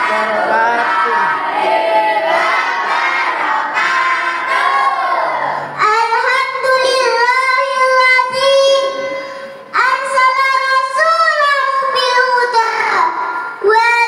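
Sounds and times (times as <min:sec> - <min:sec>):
girl singing: 0:03.7 - 0:14.0.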